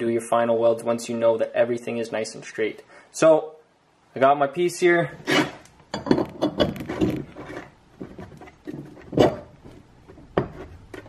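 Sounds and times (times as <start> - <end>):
metal parts clinking and knocking: 5.9 - 7.7.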